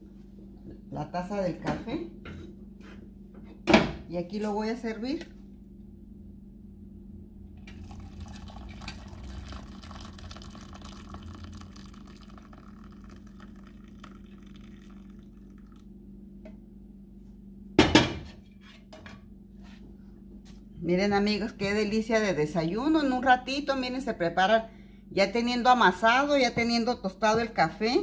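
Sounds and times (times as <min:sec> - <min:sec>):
coffee pouring into a mug: 0:07.6 - 0:16.0.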